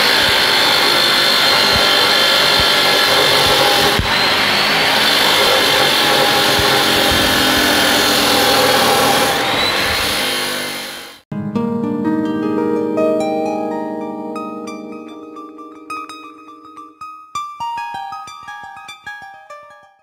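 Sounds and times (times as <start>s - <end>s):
chop saw grinding through steel: 0.0s - 11.2s.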